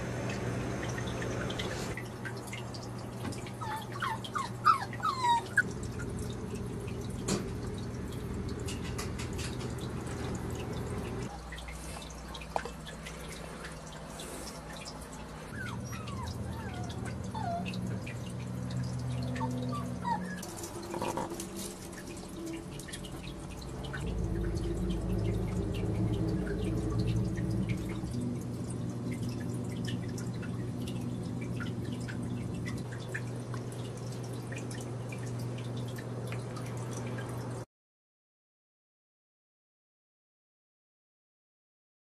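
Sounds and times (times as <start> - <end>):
puppies squeaking: 3.6 - 5.6, 15.5 - 18.0, 19.3 - 21.4
steady low hum: 5.6 - 37.2.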